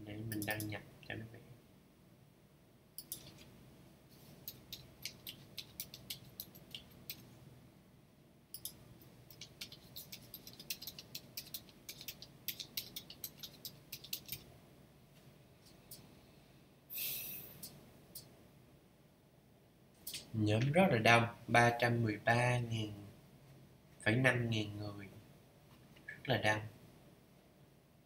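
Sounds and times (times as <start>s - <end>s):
computer keyboard typing: 3.0s - 3.4s, 4.4s - 7.3s, 8.6s - 14.5s.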